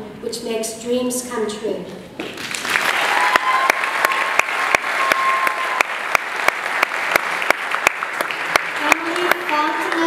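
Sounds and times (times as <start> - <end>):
person clapping steady beat: 2.2 - 10.0
audience applauding: 2.3 - 10.0.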